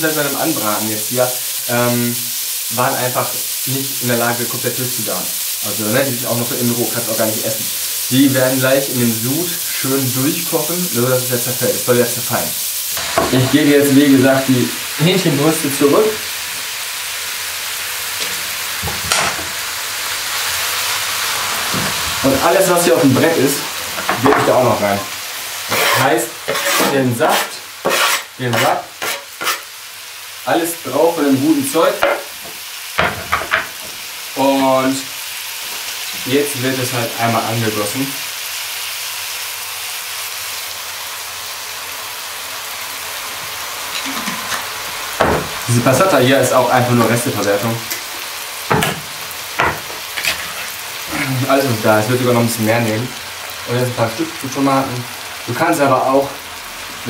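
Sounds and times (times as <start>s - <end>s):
food sizzling in a pot: 0.0s - 57.0s.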